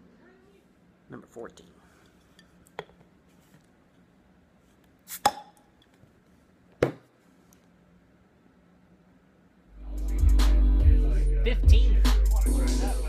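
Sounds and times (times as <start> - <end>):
bottle cap popping off: 5.1 - 5.7.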